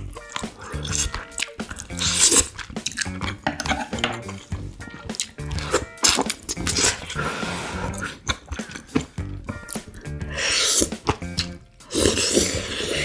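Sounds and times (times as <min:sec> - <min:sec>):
background music: 0:00.0 - 0:13.0
chopsticks clicking against dishes: 0:00.2 - 0:06.8
chewing and lip smacks: 0:00.2 - 0:07.2, 0:07.8 - 0:10.2, 0:10.8 - 0:12.8.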